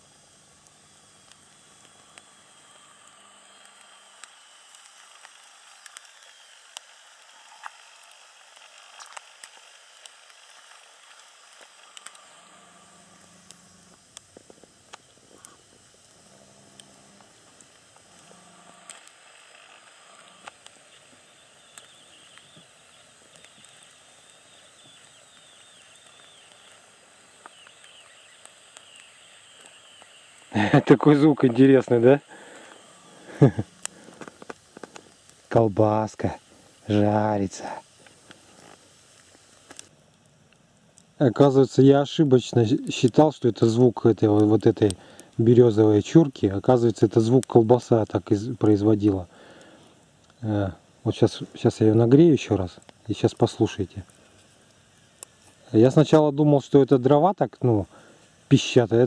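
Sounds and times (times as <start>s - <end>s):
high-pitched squeaking whine: 0.0s - 9.4s, 10.4s - 33.9s
crackling pops from coals: 0.0s - 59.0s
sausage sizzling over embers: 0.0s - 59.0s.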